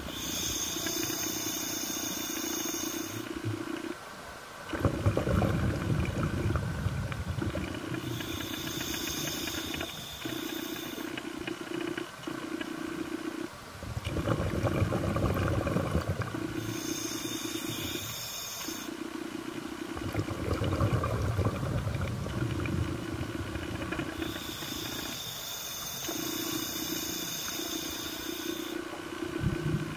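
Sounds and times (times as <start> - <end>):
regulator inhalation hiss: 0.0 - 3.4, 7.9 - 11.2, 15.7 - 20.0, 23.1 - 29.8
exhaled air bubbling: 4.6 - 25.3, 26.0 - 29.9.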